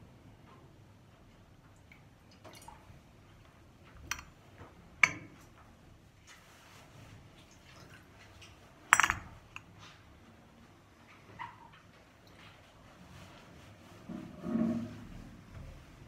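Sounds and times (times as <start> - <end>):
glass and metal vessels clinking: 9.0 - 9.3.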